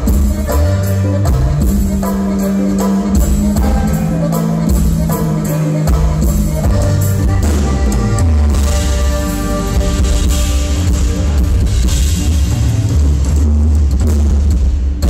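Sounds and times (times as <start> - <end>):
button accordion holding notes: 0.0 - 11.8
bass guitar: 0.0 - 15.0
congas: 0.0 - 15.0
drum kit: 0.0 - 15.0.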